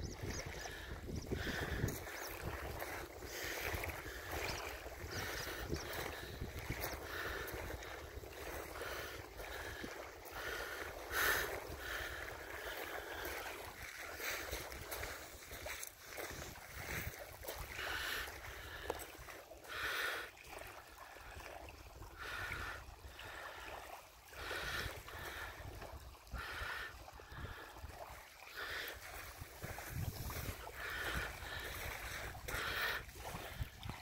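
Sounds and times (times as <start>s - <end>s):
wind rumble on microphone: 0.0s - 9.9s, 29.2s - 34.0s
ripples lapping on pebble shore: 0.0s - 34.0s.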